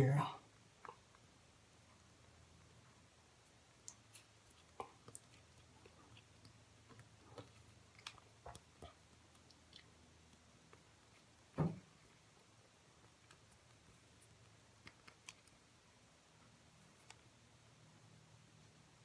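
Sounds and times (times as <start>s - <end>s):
dull thump: 11.6s - 11.9s.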